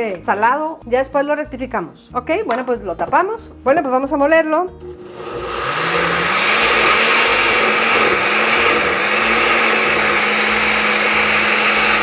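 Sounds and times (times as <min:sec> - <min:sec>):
blender running: 0:04.8 - 0:12.0.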